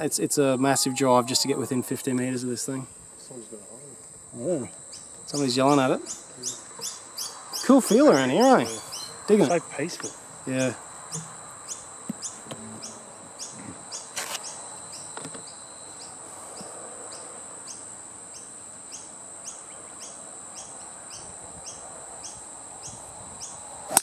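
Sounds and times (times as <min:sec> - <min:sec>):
insect chirping: 0:00.0 - 0:24.0
insects droning: 0:00.0 - 0:24.0
faint knocks: 0:11.1 - 0:13.8, 0:15.1 - 0:15.5.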